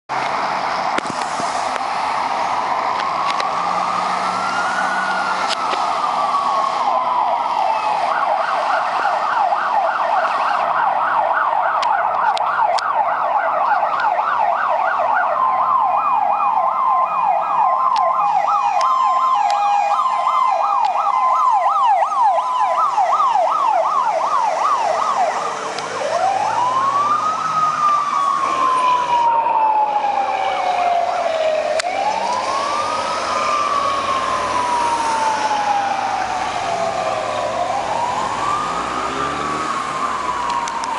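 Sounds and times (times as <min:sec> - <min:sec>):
fire engine siren wail and yelp: 0:00.1 - 0:40.9
two-tone siren: 0:01.6 - 0:40.9.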